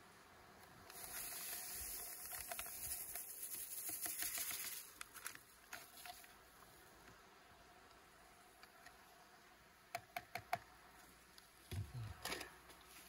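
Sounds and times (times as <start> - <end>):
sugar pouring hiss: 0.9 - 5.2.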